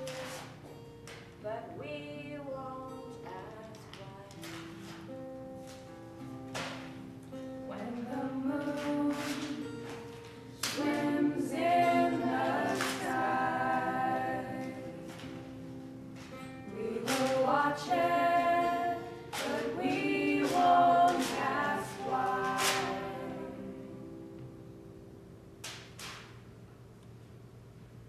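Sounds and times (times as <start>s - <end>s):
group of voices singing: 7.8s - 9.8s, 10.6s - 15.5s, 16.7s - 24.0s.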